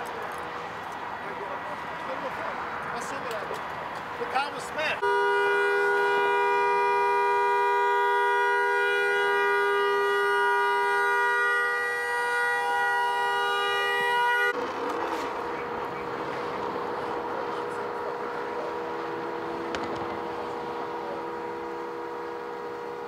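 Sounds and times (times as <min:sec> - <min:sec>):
car horn two-note chord: 0:05.0 - 0:14.5.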